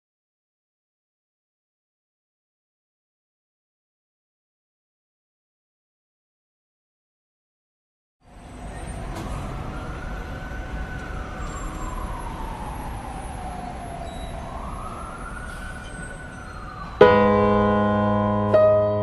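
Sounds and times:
distant siren wailing: 0:08.3 - 0:19.0
traffic rumble: 0:08.3 - 0:19.0
sustained piano chord: 0:17.0 - 0:19.0.

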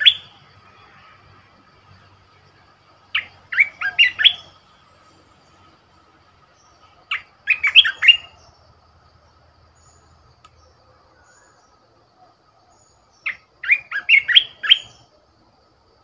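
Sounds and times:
bird singing whistled notes: 0:00.0 - 0:00.6, 0:03.0 - 0:05.7, 0:06.5 - 0:08.7, 0:09.7 - 0:11.8, 0:12.6 - 0:15.2.

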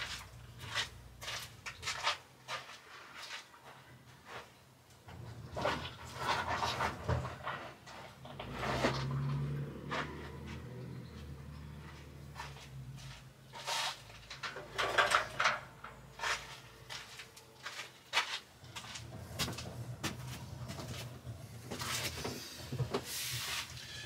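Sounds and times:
handling knocks and scrapes: 0:00.0 - 0:24.0.

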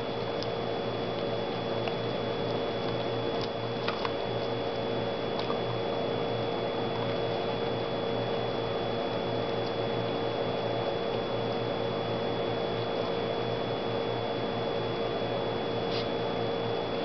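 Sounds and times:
steady background hum: 0:00.0 - 0:17.0
dog crunching corn kernels: 0:02.8 - 0:04.6.

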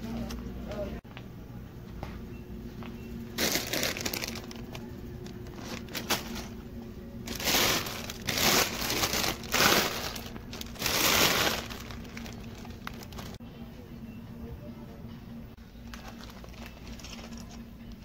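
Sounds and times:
plastic bags crinkling: 0:03.4 - 0:06.6, 0:07.3 - 0:13.4, 0:15.8 - 0:17.6.

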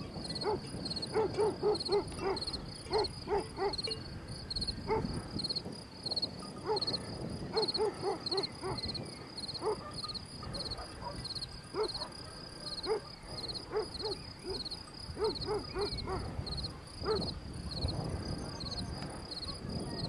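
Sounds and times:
dog barking: 0:00.4 - 0:03.9, 0:04.9 - 0:05.2, 0:06.4 - 0:09.0, 0:09.6 - 0:17.3, 0:19.4 - 0:19.7.

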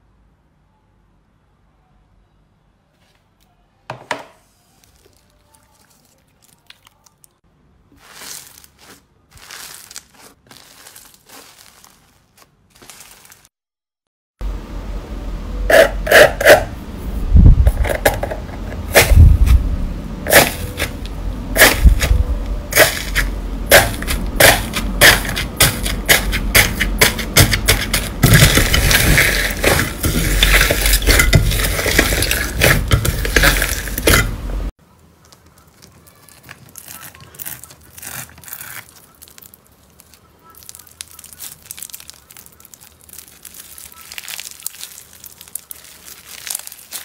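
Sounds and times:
faint slime crackling: 0:04.5 - 0:13.5, 0:35.0 - 0:47.0
slime crust crackling: 0:04.7 - 0:13.5, 0:35.2 - 0:47.0.

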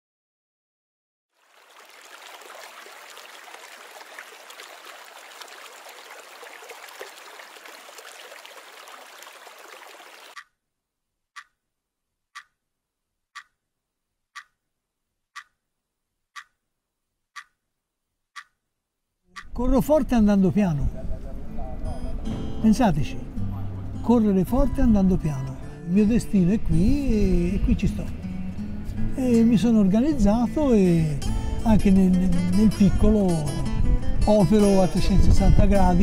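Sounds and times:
flowing river water: 0:01.4 - 0:10.4
wristwatch ticking: 0:11.4 - 0:11.6, 0:12.3 - 0:12.6, 0:13.3 - 0:13.6, 0:14.3 - 0:14.6, 0:15.3 - 0:15.6, 0:16.3 - 0:16.6, 0:17.3 - 0:17.6, 0:18.3 - 0:18.6.

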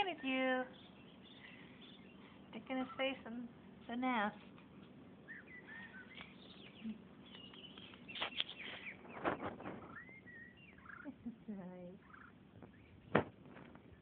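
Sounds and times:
baby pigeon squeaky peeps: 0:05.2 - 0:13.3.

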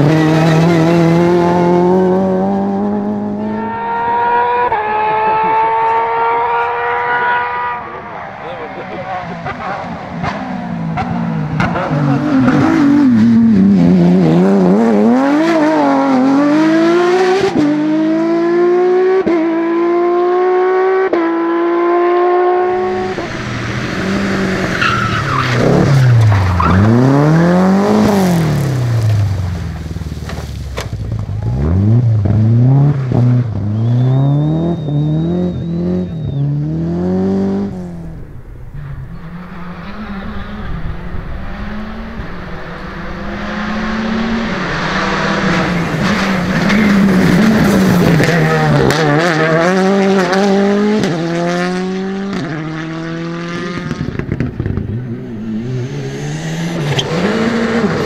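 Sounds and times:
rally car accelerating with upshifts: 0:00.0 - 0:58.0
rally car engine revving: 0:00.0 - 0:58.0
quieter car approaching: 0:22.4 - 0:58.0.

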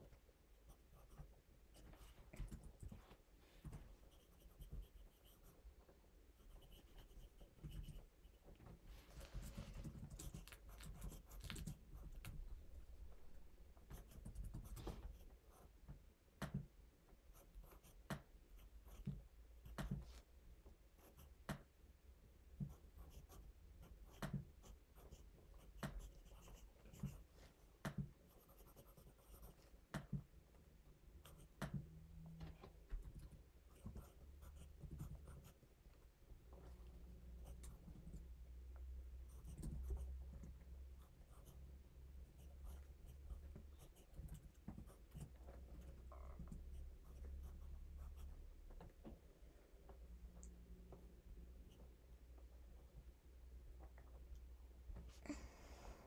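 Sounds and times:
pencil scratching on paper: 0:00.6 - 0:05.6, 0:06.3 - 0:08.4, 0:09.0 - 0:15.8, 0:17.3 - 0:20.3, 0:21.0 - 0:21.6, 0:22.6 - 0:29.7, 0:33.7 - 0:35.6, 0:39.3 - 0:40.1, 0:41.0 - 0:41.6, 0:42.2 - 0:46.0.

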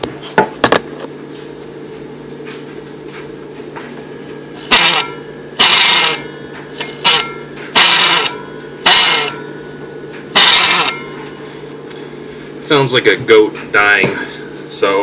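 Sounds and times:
car generator squealing and creaking: 0:06.9 - 0:09.4.

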